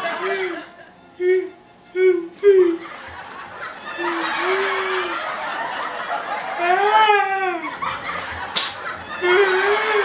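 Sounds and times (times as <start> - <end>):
woman laughing and squealing: 3.8 - 5.6, 9.1 - 10.0.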